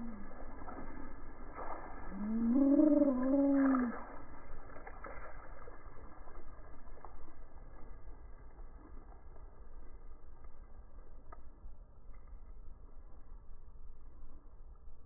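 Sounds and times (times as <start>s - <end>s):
water splashes: 0.0s - 10.9s
deep wavering moan: 1.9s - 4.3s
faint clicks: 8.8s - 13.3s.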